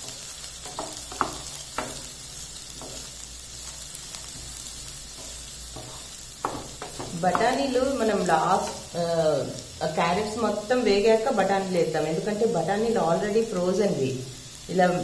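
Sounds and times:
spatula scraping pan: 0:00.0 - 0:09.0
vegetables sizzling in oil: 0:00.0 - 0:15.0.

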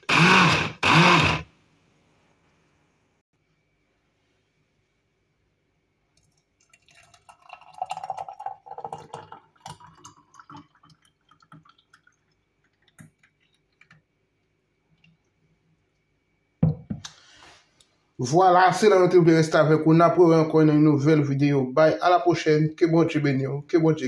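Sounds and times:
smoothie pouring into glass: 0:06.2 - 0:14.0
drips: 0:06.2 - 0:14.1.

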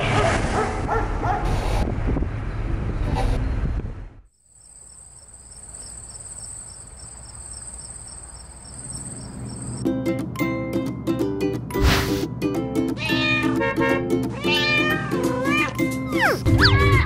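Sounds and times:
high insect trill: 0:04.3 - 0:09.8.

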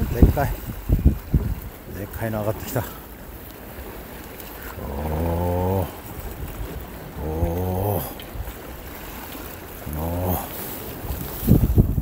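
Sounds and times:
sea noise: 0:00.0 - 0:12.0
wind: 0:00.0 - 0:12.0
man groaning: 0:04.8 - 0:06.0, 0:07.2 - 0:08.2, 0:09.8 - 0:10.6.

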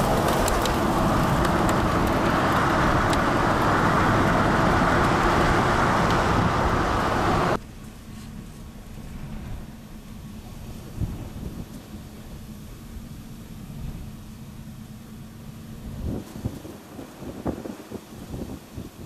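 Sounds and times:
wind and rain on microphone: 0:00.0 - 0:19.0.

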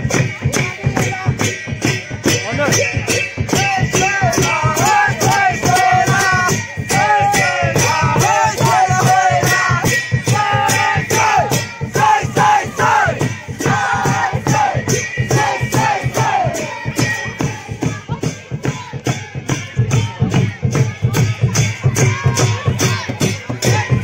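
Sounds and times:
steady percussive beat: 0:00.0 - 0:24.0
men singing and shouting in chorus: 0:02.3 - 0:18.9.

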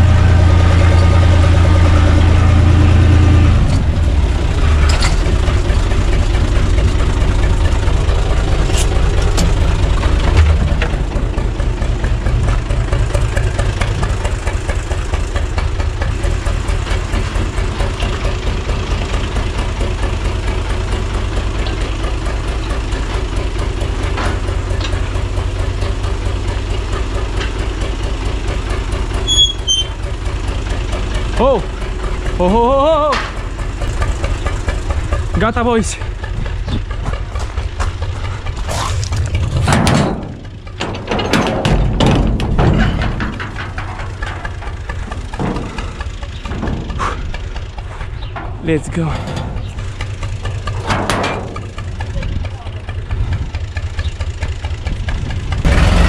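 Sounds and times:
tractor diesel engine idling: 0:00.0 - 0:56.0
metallic squeak of hand cart: 0:29.2 - 0:30.1, 0:47.9 - 0:50.4.

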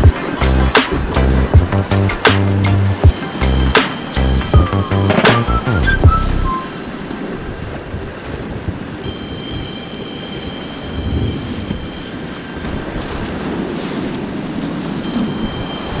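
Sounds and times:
whitewater rushing: 0:00.0 - 0:09.2
wind buffeting microphone: 0:00.0 - 0:16.0.

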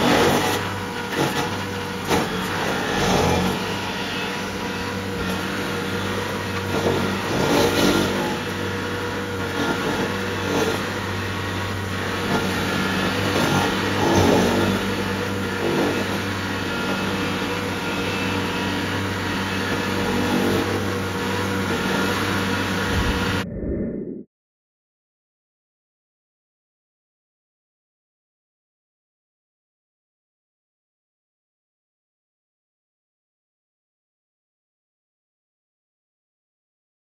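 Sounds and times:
stump grinder grinding: 0:00.0 - 0:23.4.

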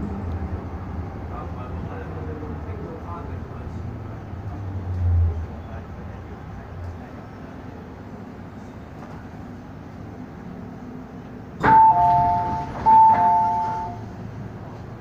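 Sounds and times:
train running hum: 0:00.0 - 0:15.0
two-tone public-address chime: 0:11.6 - 0:14.1.

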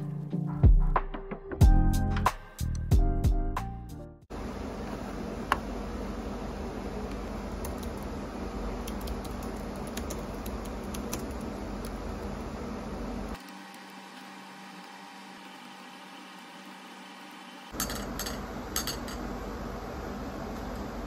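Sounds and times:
steady low hum: 0:04.3 - 0:13.4.

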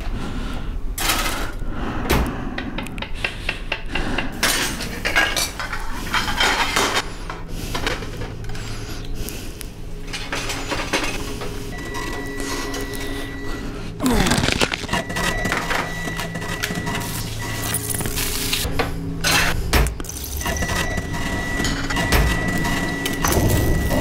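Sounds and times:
steady low hum: 0:00.0 - 0:24.0
plates and utensils clinking: 0:04.4 - 0:07.1.

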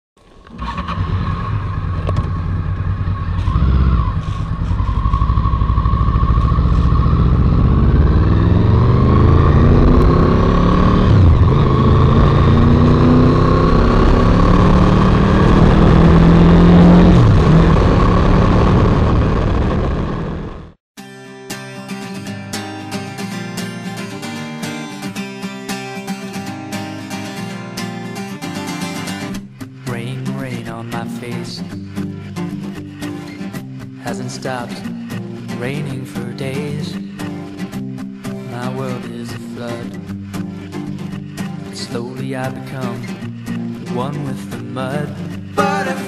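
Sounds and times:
motorcycle engine accelerating: 0:00.2 - 0:20.8.

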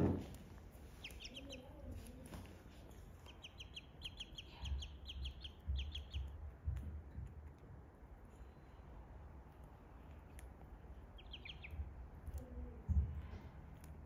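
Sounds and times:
ducklings peeping: 0:00.6 - 0:06.9, 0:10.2 - 0:12.8
soft low thumps: 0:04.6 - 0:07.9.

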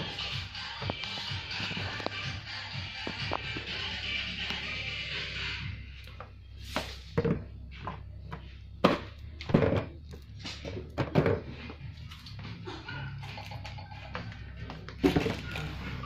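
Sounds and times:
objects knocking and thudding: 0:06.2 - 0:16.0.

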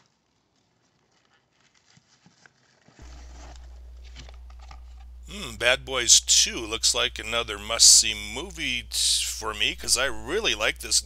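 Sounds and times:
steady low hum: 0:03.0 - 0:11.0.

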